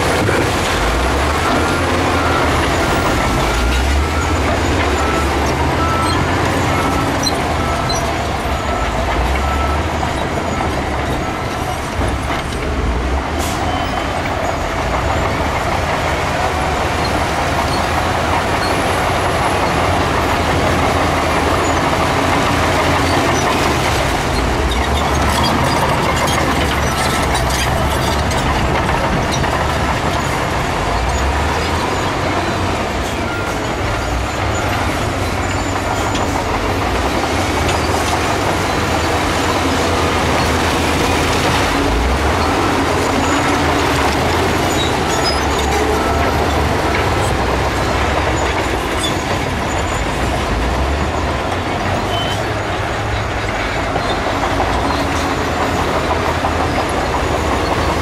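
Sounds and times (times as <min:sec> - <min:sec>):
diesel machinery engine rumble: 0:00.0 - 0:58.0.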